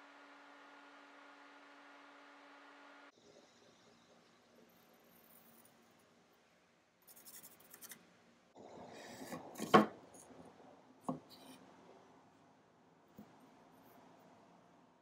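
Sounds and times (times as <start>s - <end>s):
pencil scratching on wood: 7.1s - 8.0s.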